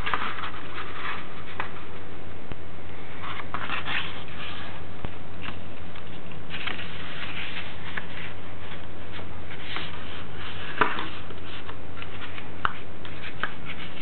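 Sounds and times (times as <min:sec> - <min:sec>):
paper crackle: 0:00.0 - 0:01.8, 0:05.4 - 0:14.0
paper rustling and folding: 0:00.0 - 0:02.0, 0:02.9 - 0:14.0
electrical hum and hiss: 0:00.0 - 0:14.0.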